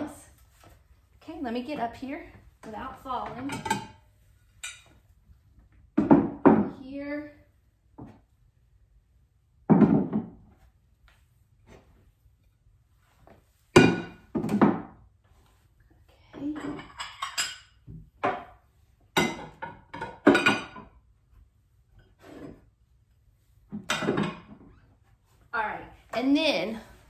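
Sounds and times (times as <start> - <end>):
dishes clinking: 3.4 - 4.0, 4.6 - 5.0, 16.5 - 18.4.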